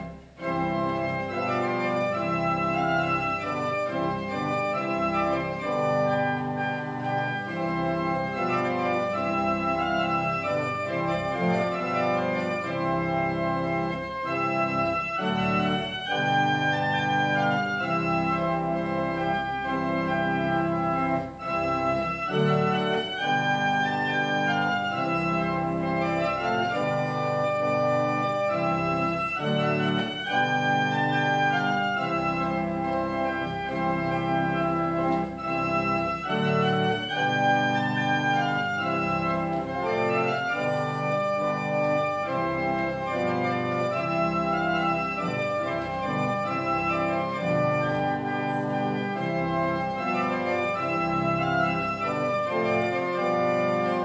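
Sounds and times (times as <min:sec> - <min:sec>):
organ chords: 0:00.0 - 0:54.0.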